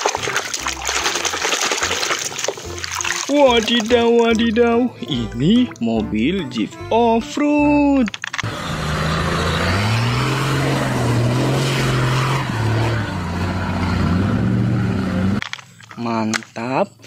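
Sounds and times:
tyres in mud: 0.0 - 5.9
suv engine revving under load: 8.4 - 15.4.

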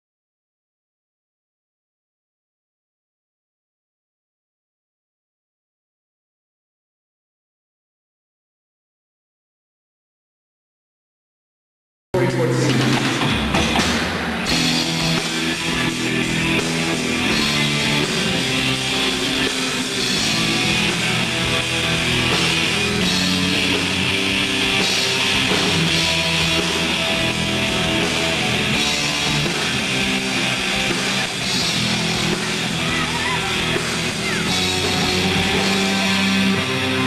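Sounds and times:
rock band playing live: 12.2 - 37.0.

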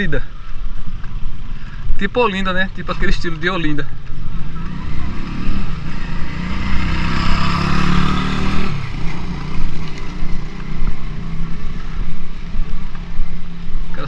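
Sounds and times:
road noise: 0.0 - 14.0
vehicle engine droning: 2.7 - 14.0.

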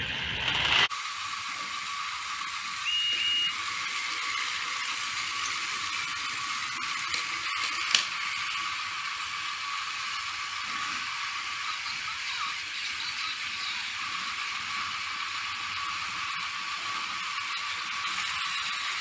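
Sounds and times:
toy trains whirring: 0.0 - 19.0
brief high tone: 2.8 - 3.6.

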